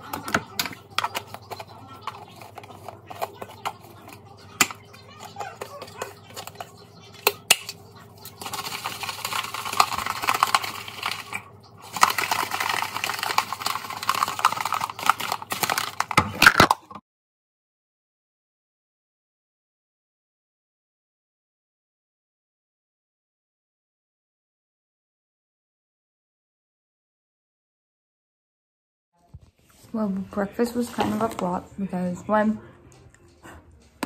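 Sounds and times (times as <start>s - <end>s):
shaker bottle ball rattling: 0.3s - 16.2s.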